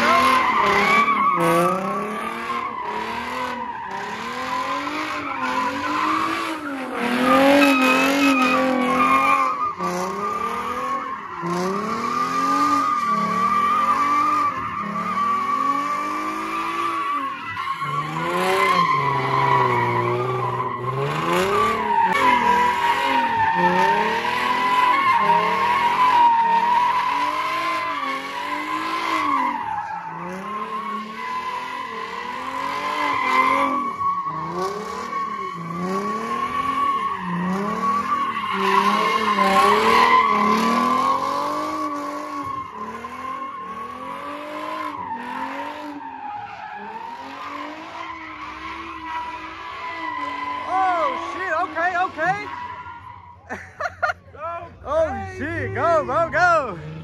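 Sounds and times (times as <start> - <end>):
car engine revving: 0.0 - 53.3, 54.4 - 57.0
tyre squeal: 0.0 - 55.3.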